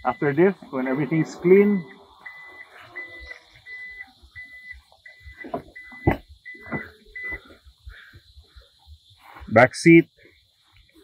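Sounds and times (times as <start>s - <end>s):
short high warning beeps: 0.0s - 7.5s.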